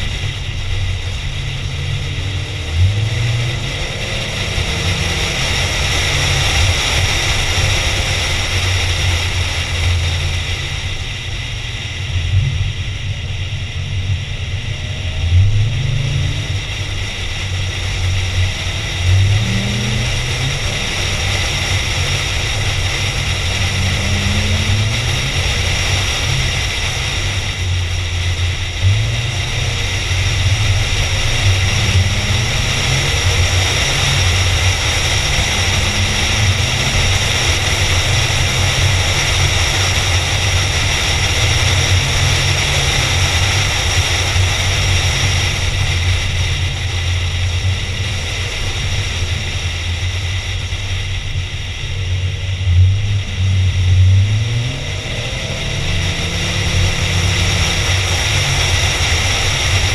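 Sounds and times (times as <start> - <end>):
car engine and tyre drone: 0.0 - 59.9
car engine revving: 0.0 - 59.9.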